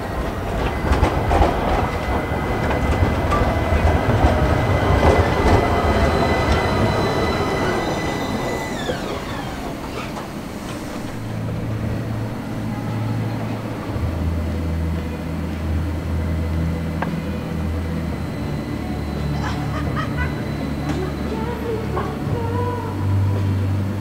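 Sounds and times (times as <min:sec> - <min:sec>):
tram wheels rumbling over rails: 0:00.0 - 0:24.0
high whine sliding down: 0:00.2 - 0:23.9.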